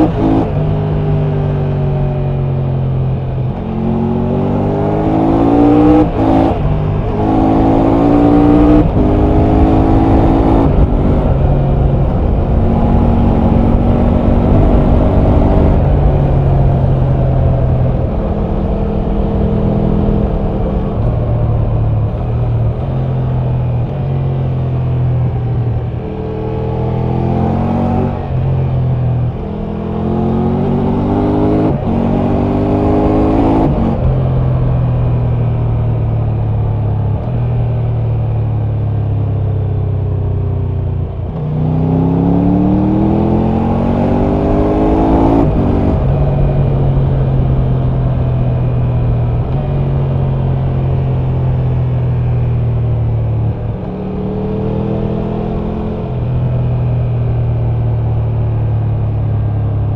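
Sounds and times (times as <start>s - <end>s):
motorcycle engine accelerating: 0.0s - 59.9s.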